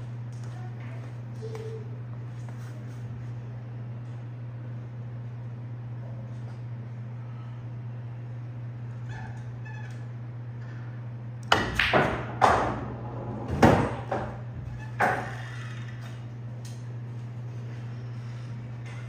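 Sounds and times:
steady low hum: 0.0s - 19.0s
pool balls knocking: 11.5s - 15.5s.

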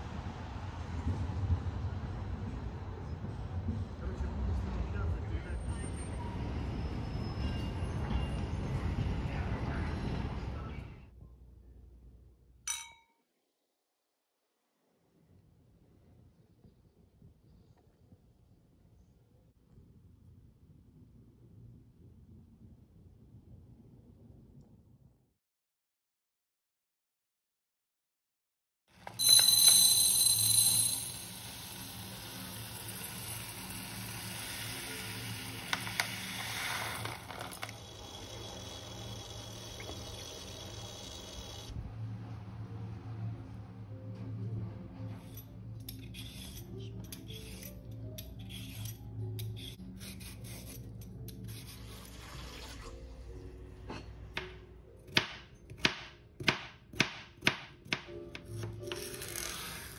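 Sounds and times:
lentils pouring into glass bowl: 29.2s - 41.0s
soft background music: 29.2s - 59.9s
peeler scraping a carrot: 45.2s - 52.1s.

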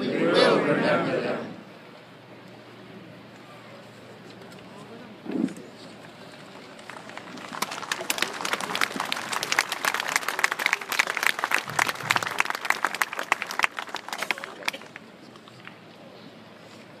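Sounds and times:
crowd applauding: 6.0s - 15.1s.

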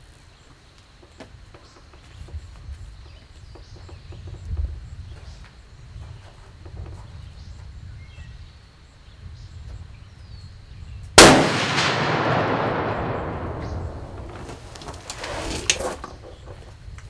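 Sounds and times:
rifle shot with echo: 11.2s - 14.7s.

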